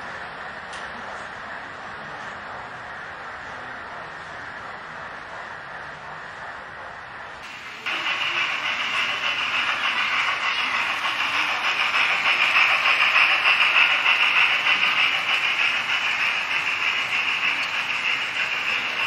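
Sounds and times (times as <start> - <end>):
model train hissing on track: 7.4 - 19.0.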